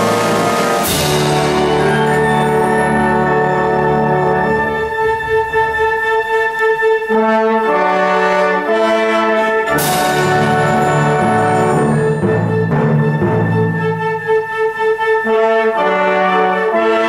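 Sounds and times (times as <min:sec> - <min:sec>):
concert band playing: 0:00.0 - 0:07.3, 0:09.7 - 0:14.3.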